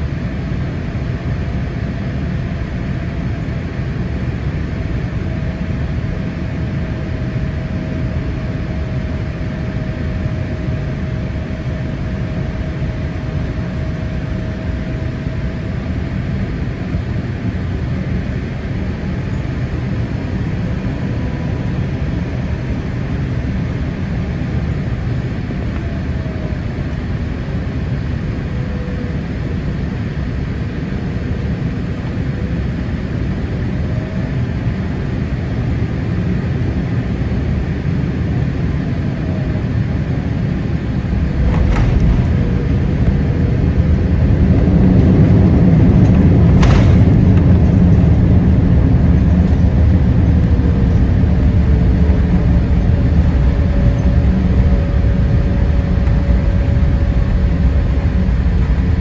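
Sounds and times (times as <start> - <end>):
airflow and engine noise: 0.0 - 59.0
low rumble of rollout: 40.3 - 59.0.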